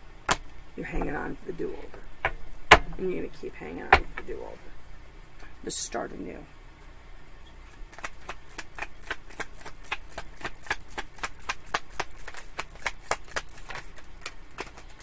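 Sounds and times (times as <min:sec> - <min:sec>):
cards being shuffled: 0:07.7 - 0:15.0.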